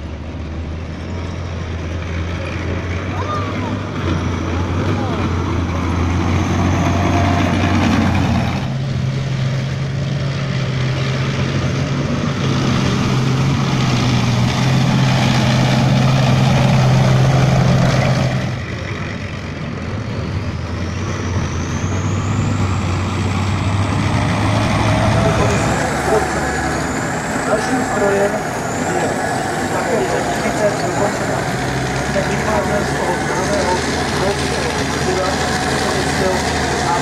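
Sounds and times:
tracked vehicles driving past: 0.0 - 37.0
high rising whine: 20.6 - 37.0.

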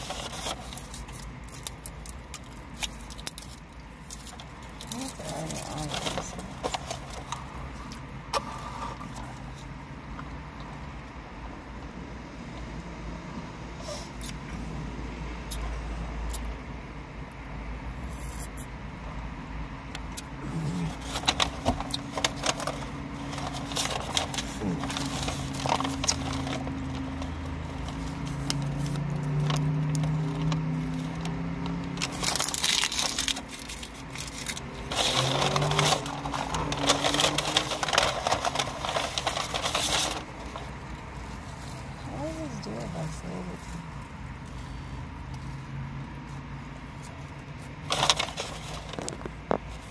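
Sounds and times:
paper and wrappers rustling: 0.0 - 9.7, 20.4 - 45.6, 46.8 - 49.9.

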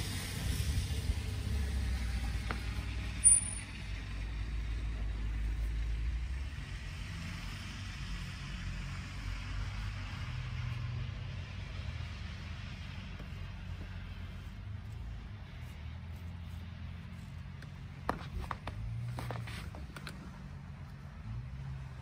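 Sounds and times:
vehicle engine rumble: 0.0 - 22.0
sharp high squeak: 3.2 - 3.8.

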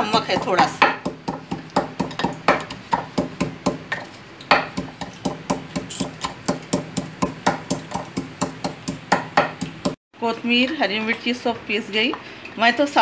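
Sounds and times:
pestle pounding in wooden mortar: 0.0 - 10.0.

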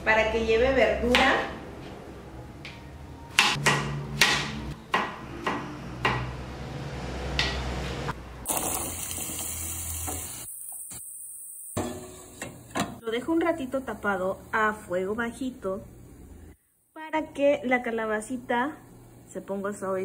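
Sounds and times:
knife chopping on plastic board: 3.3 - 6.3.

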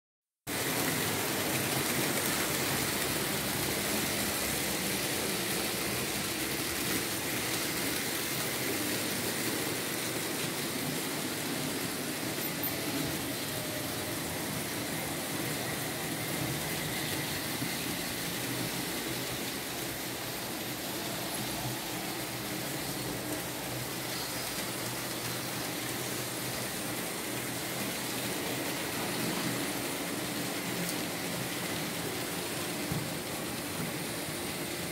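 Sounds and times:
small wheels rolling on rails: 0.5 - 34.9.

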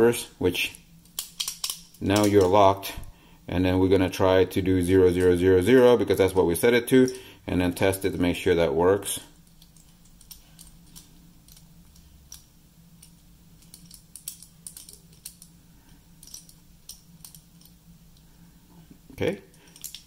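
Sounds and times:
low steady hum: 0.0 - 20.0
padlock wheels clicking: 1.1 - 2.5.

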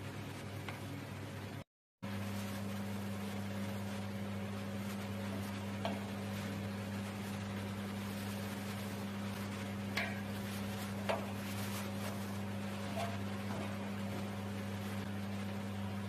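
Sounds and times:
low machine hum: 0.0 - 16.0.

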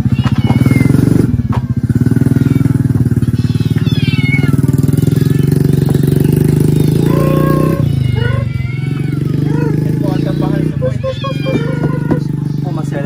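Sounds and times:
kittens meowing: 0.0 - 1.5, 2.2 - 13.0
small engine running: 0.0 - 13.0.

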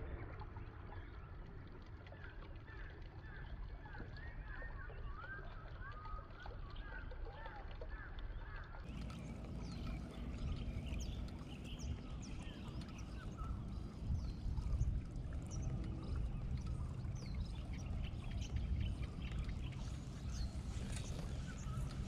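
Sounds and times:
low outdoor rumble: 8.9 - 22.0
small birds chirping: 8.9 - 22.0.

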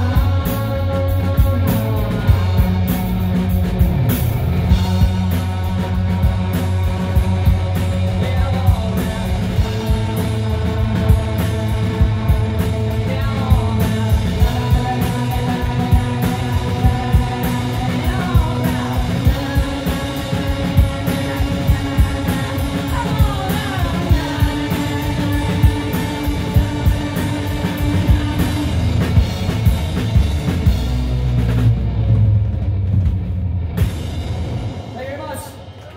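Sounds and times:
person singing: 0.0 - 3.2, 4.7 - 29.6
electric guitar: 0.0 - 35.0
bass guitar: 0.0 - 35.9
drums and cymbals: 0.0 - 35.9.

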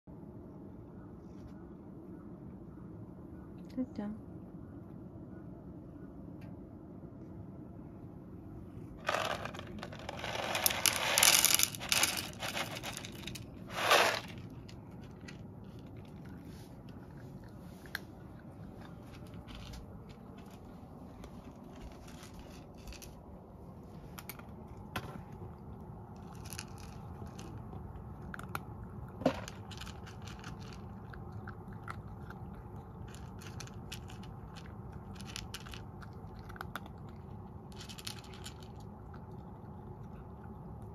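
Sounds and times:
cat crunching dry food: 8.7 - 40.9
loud rustling and rattling: 9.0 - 14.7
kibble clicking against bowl: 26.2 - 39.5.

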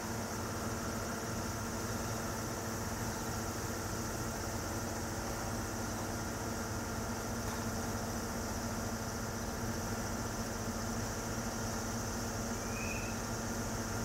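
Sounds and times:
faint high chirp: 12.6 - 13.3.

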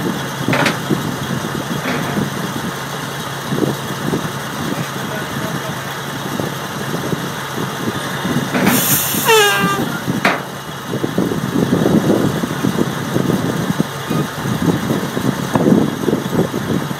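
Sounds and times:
engine running steadily: 0.0 - 16.9
hiss ending in falling squeal: 8.6 - 10.1.

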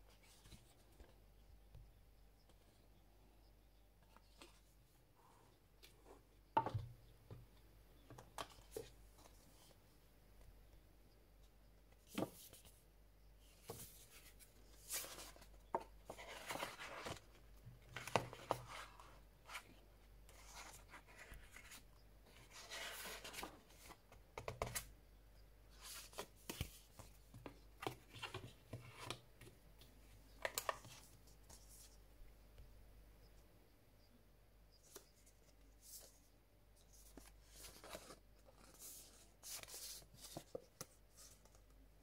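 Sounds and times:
booklet pages turning: 13.6 - 17.4, 22.4 - 24.9, 25.8 - 29.2, 36.8 - 41.7.

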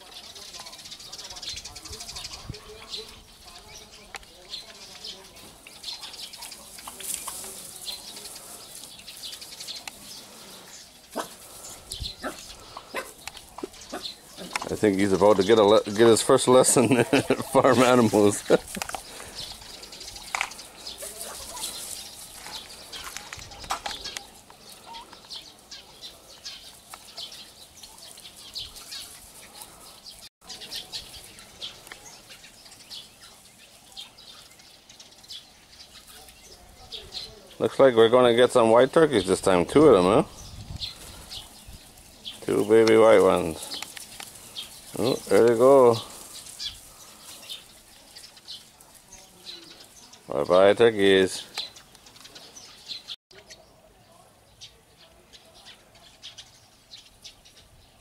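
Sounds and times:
turkey poults peeping: 0.0 - 53.9.

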